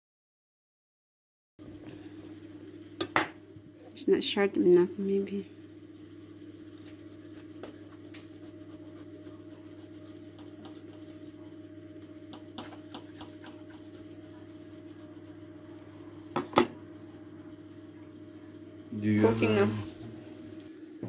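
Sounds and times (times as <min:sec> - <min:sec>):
knife scraping fish: 0:06.6 - 0:11.3.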